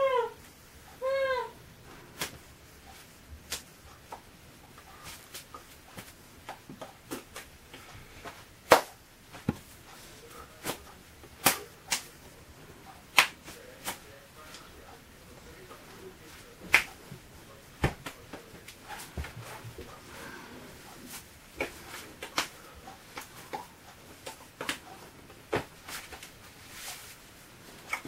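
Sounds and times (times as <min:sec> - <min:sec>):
hand slaps and claps: 0:08.7 - 0:09.6, 0:11.4 - 0:12.1, 0:13.1 - 0:14.0, 0:16.7 - 0:17.0, 0:17.8 - 0:19.3, 0:21.6 - 0:24.8.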